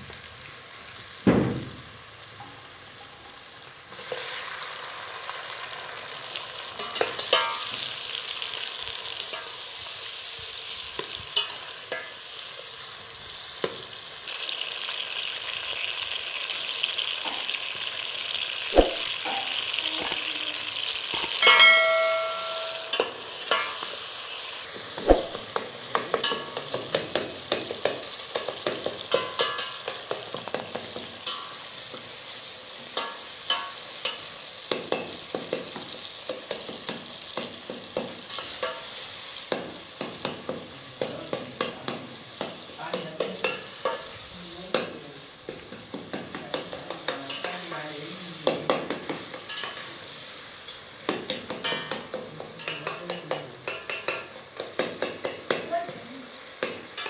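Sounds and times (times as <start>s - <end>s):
curry sizzling in pot: 0.0s - 57.0s
spoon knocking and scraping pot: 21.2s - 23.8s, 25.0s - 31.5s, 48.4s - 49.9s, 50.7s - 55.7s.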